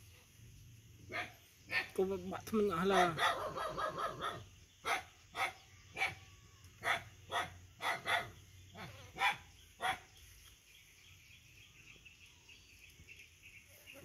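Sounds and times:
dog barking: 0:01.1 - 0:02.0, 0:03.0 - 0:06.2, 0:06.8 - 0:08.4, 0:09.1 - 0:10.1.

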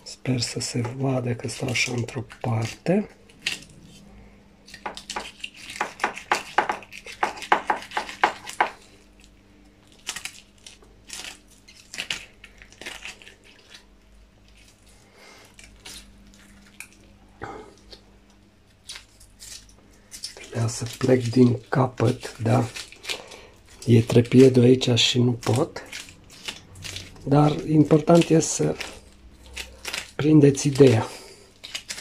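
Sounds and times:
knife scraping fish scales: 0:04.6 - 0:08.8.

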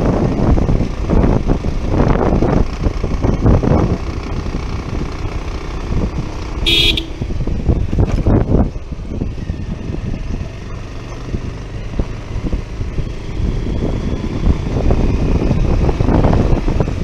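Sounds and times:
motorcycle riding: 0:00.0 - 0:17.0
wind and road noise: 0:00.0 - 0:17.0
horn beep: 0:06.6 - 0:07.2.

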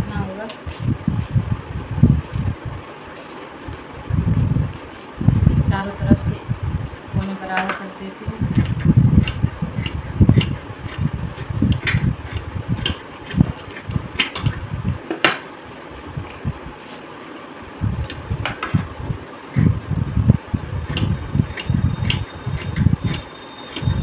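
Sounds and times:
uneven low rumble: 0:00.0 - 0:02.8, 0:03.6 - 0:07.3, 0:17.8 - 0:23.1.

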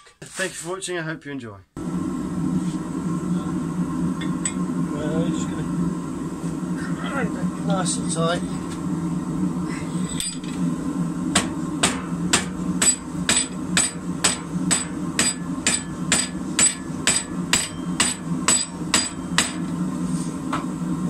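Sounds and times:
low hum: 0:01.8 - 0:21.0
hammer striking hot metal: 0:11.3 - 0:19.8.

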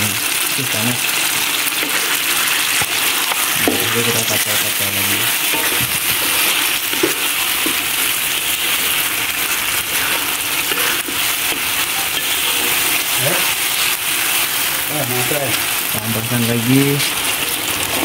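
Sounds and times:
food sizzling in a wok: 0:00.0 - 0:18.0
metal spatula stirring: 0:01.4 - 0:15.8.

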